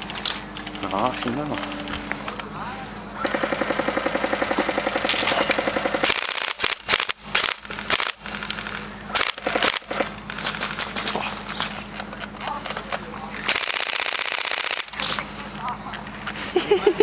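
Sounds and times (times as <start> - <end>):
airsoft rifle firing bursts: 3.2 - 10.4, 13.5 - 15.1.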